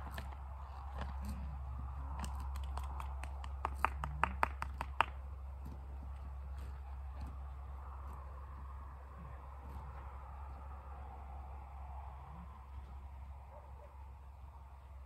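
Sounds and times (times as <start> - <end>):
saddle tack clicking: 0.0 - 5.0
steady low rumble: 0.0 - 15.0.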